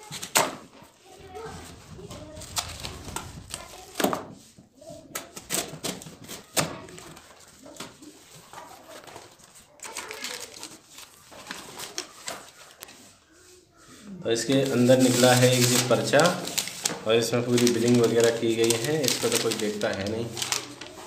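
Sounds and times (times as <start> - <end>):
plastic wrap crinkling: 0.0 - 4.0, 5.3 - 21.0
blade slitting tape and cardboard: 5.1 - 7.9.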